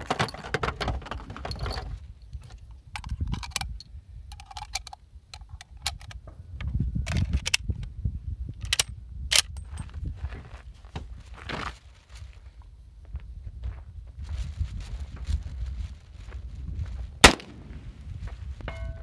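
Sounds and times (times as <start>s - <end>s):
wind rumble on microphone: 0.0s - 19.0s
metallic clicks: 2.4s - 6.2s.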